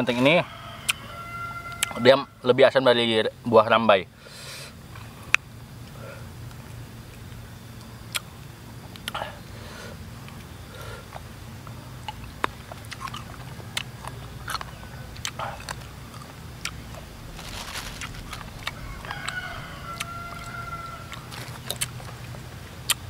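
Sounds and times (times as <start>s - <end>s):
person chewing and lip smacking: 8.1s - 8.3s, 8.9s - 9.2s, 12.0s - 17.4s, 21.1s - 23.0s.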